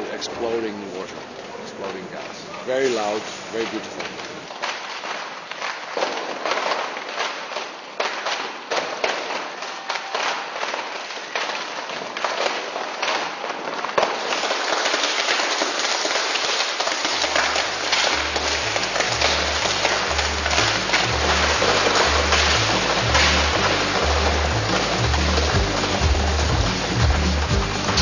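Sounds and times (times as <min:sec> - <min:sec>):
sharp cracks and pops: 0:01.4 - 0:28.0
low pulsing beat: 0:17.4 - 0:28.0.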